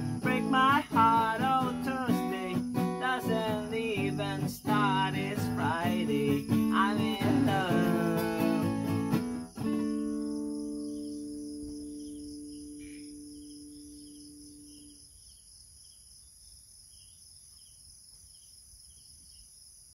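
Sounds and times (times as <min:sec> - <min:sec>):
acoustic guitar chord ringing: 0:00.0 - 0:15.0
crickets chirping: 0:00.0 - 0:20.0.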